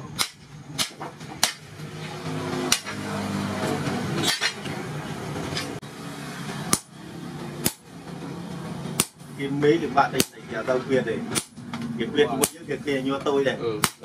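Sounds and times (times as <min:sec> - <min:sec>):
hammer striking steel on anvil: 0:02.7 - 0:03.0, 0:06.7 - 0:07.0, 0:07.6 - 0:07.9, 0:09.0 - 0:09.2.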